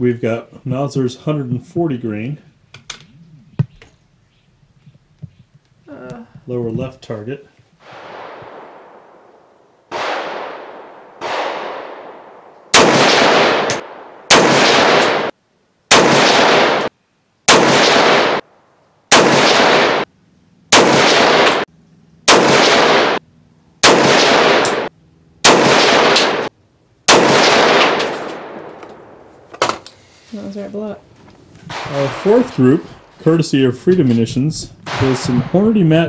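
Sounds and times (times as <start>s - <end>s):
rifle shots: 7.8s - 15.3s, 15.9s - 16.9s, 17.5s - 18.5s, 19.1s - 20.1s, 20.7s - 21.7s, 22.3s - 23.2s, 23.8s - 26.5s, 27.1s - 29.3s, 31.7s - 32.8s, 34.8s - 36.0s.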